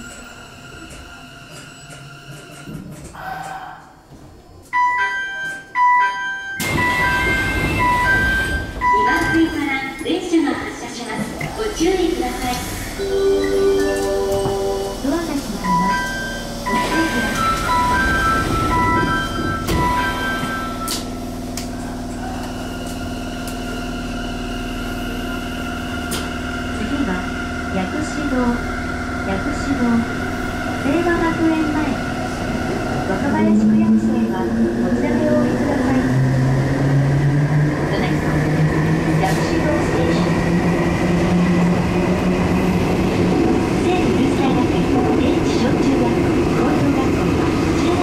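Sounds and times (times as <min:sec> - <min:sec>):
electronic door chime: 0:15.6 - 0:21.0.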